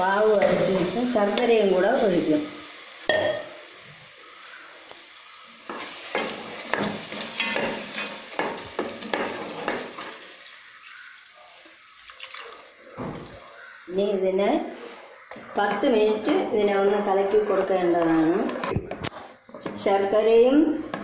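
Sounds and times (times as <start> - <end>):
low sizzle: 0.0 - 21.0
spoon scraping in pan: 5.4 - 11.2.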